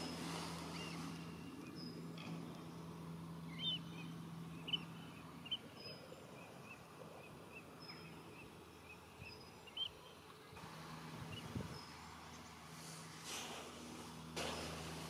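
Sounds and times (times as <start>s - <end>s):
birds calling: 0.0s - 10.6s.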